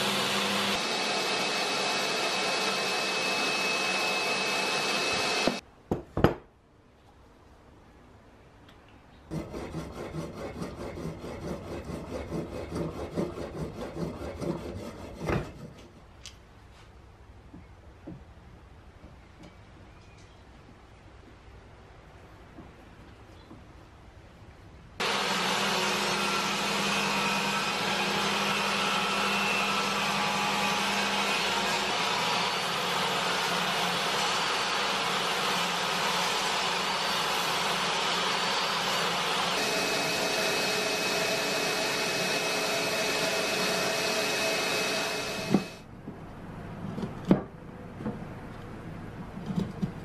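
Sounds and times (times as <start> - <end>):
table saw running: 0.0 - 5.6, 25.0 - 45.8.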